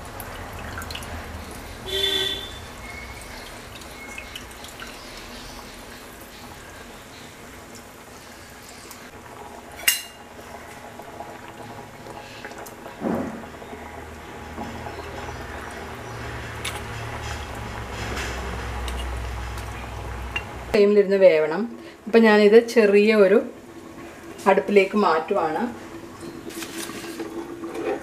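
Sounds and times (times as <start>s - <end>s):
curry simmering with bubbling: 0.0s - 20.8s, 21.4s - 28.0s
steel ladle stirring: 16.6s - 19.7s.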